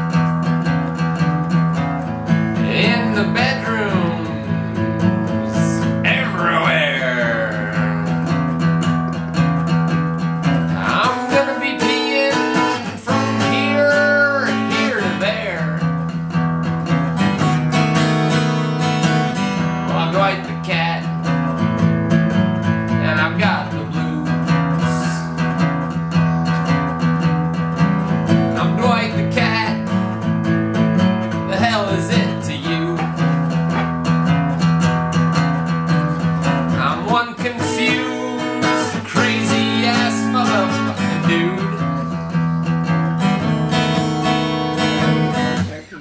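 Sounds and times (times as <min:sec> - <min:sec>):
acoustic guitar strummed: 0:00.0 - 0:46.0
man singing: 0:02.3 - 0:08.8, 0:10.6 - 0:16.2, 0:19.6 - 0:21.4, 0:22.9 - 0:26.5, 0:28.2 - 0:30.2, 0:31.3 - 0:33.7, 0:36.2 - 0:46.0.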